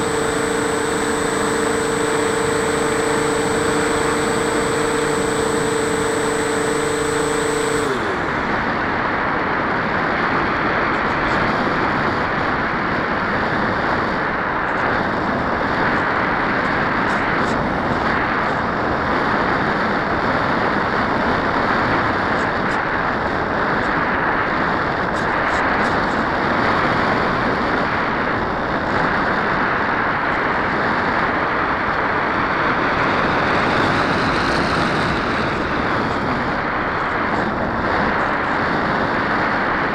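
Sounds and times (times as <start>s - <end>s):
electric motor whine: 0.0s - 9.3s
wind rushing past airframe: 26.6s - 39.9s.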